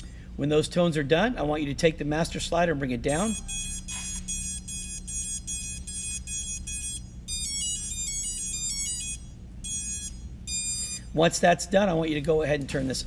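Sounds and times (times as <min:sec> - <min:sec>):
low steady hum: 0:00.0 - 0:13.0
short high beeps: 0:03.3 - 0:11.1.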